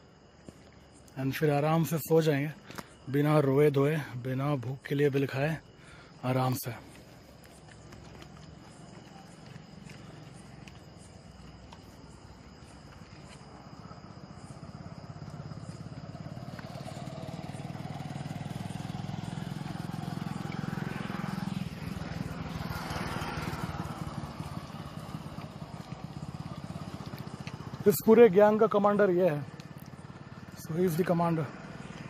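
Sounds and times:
motorcycle engine running: 7.4s - 11.8s, 12.9s - 32.0s.

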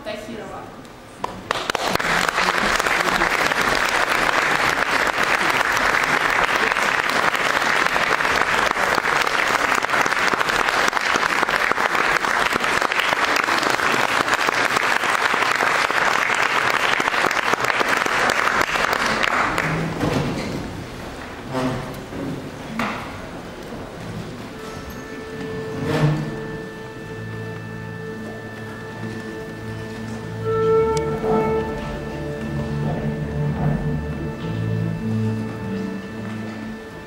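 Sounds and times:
audience applauding: 1.2s - 20.0s.

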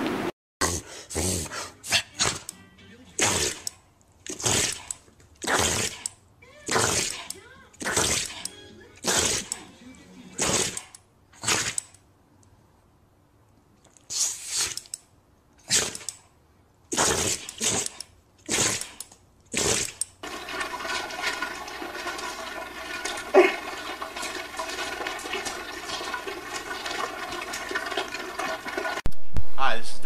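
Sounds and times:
dog breathy bursts: 14.1s - 14.8s
steady hiss with faint hum: 29.1s - 30.0s.

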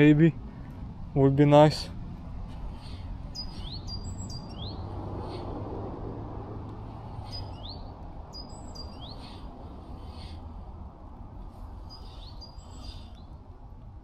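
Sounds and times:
low outdoor background noise: 0.0s - 14.0s
small birds chirping: 2.4s - 5.7s, 6.8s - 10.7s, 11.6s - 13.5s.

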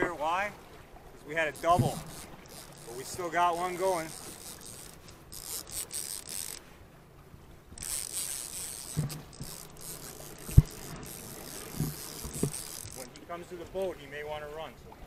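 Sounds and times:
fishing reel gears whirring: 1.3s - 6.7s, 7.7s - 13.5s
low knocks: 10.4s - 11.1s.

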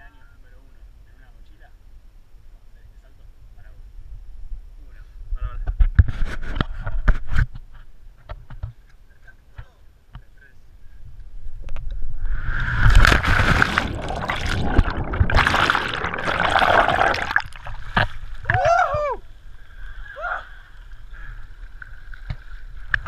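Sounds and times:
rush of air: 11.4s - 18.4s
underwater bubbling: 11.7s - 18.6s
loud splash: 12.3s - 18.4s.

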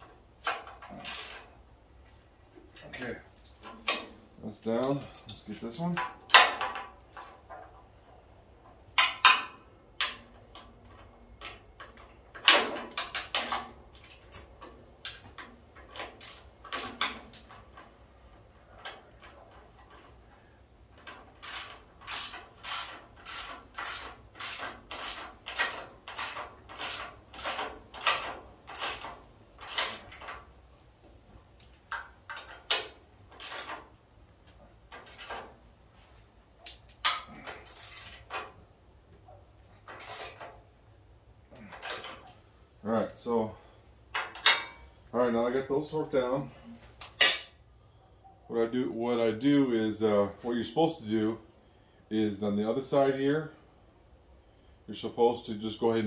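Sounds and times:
hand ratchet strokes: 0.4s - 1.5s, 15.8s - 17.8s, 21.0s - 30.4s, 31.9s - 34.0s, 34.9s - 35.6s, 36.6s - 38.5s, 39.8s - 40.6s
metallic clanks: 44.1s - 45.0s, 47.0s - 47.6s.

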